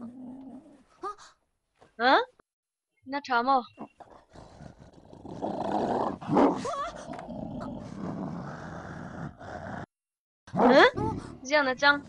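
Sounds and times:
large dog growling low: 0.0s - 0.8s, 4.0s - 9.9s.

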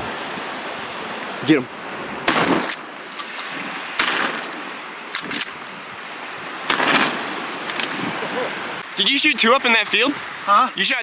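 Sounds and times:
small waves lapping on shore: 0.0s - 11.0s.

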